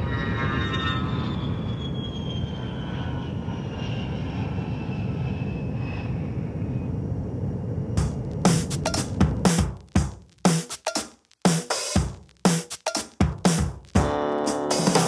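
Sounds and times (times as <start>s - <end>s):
high jet engine whine: 0.0s - 9.4s
jet engines rumbling: 0.0s - 9.7s.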